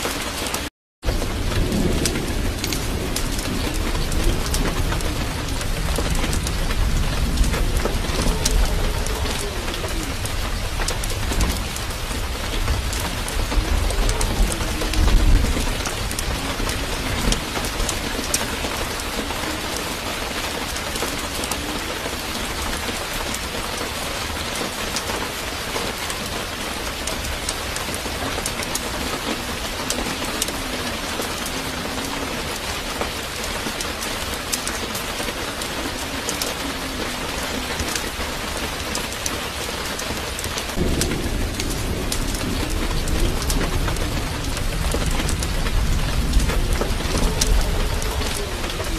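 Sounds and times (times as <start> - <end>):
steady rain falling: 0.0 - 48.9
low rumble: 40.7 - 48.9.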